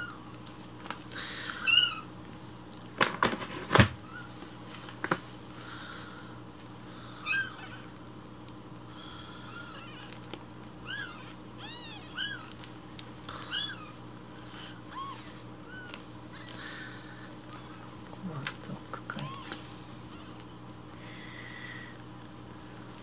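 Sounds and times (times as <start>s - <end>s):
kitten mewing: 9.4s - 12.6s, 13.3s - 17.9s.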